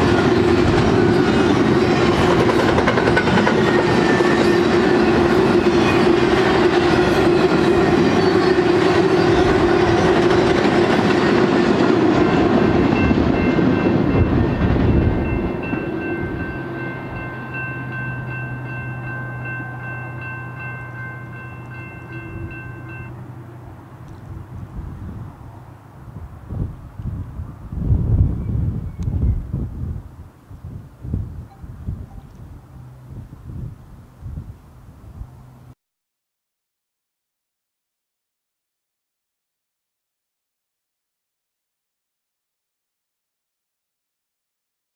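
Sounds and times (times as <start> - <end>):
distant locomotive horn: 0.0 - 24.6
freight train cars rolling on rails: 0.0 - 30.2.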